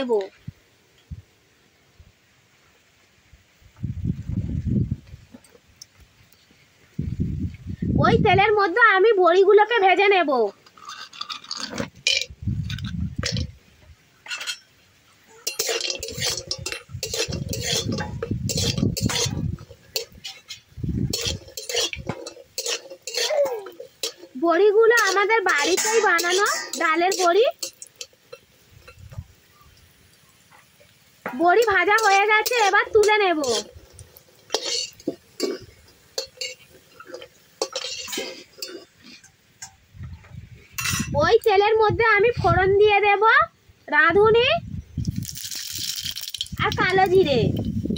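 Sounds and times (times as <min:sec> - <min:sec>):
food frying in oil: 0:04.9 - 0:47.9
metal spatula scraping pan: 0:14.2 - 0:14.7, 0:15.4 - 0:29.0, 0:31.3 - 0:39.4.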